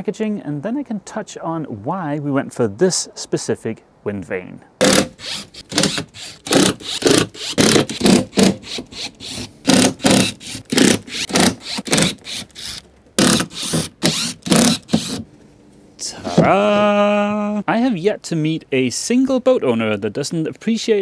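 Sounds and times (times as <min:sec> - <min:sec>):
cordless drill whirring: 0:04.8 - 0:15.2.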